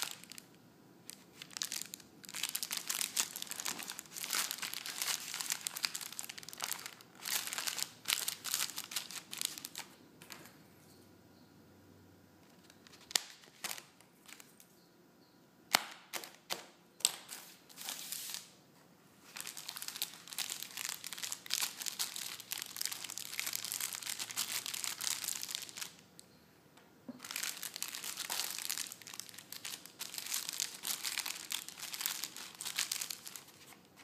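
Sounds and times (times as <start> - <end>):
bubble wrap snapping: 0.0 - 9.9, 19.3 - 26.0, 27.2 - 34.0
bubble wrap crinkling: 0.0 - 10.4, 12.5 - 14.6, 17.2 - 18.5, 19.2 - 26.1, 27.2 - 34.0.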